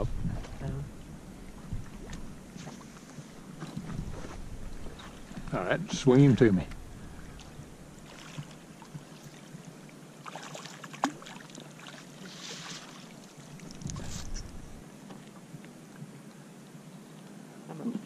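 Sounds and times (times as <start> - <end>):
water splashing: 1.4 - 14.8
handling noise: 13.6 - 14.8.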